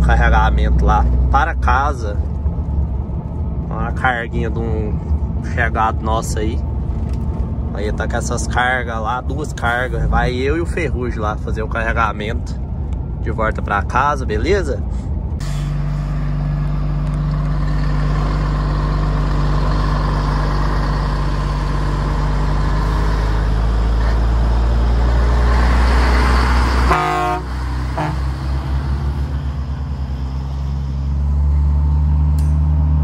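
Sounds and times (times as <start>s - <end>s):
truck diesel engine running: 0.0s - 33.0s
truck horn toot: 26.8s - 28.4s.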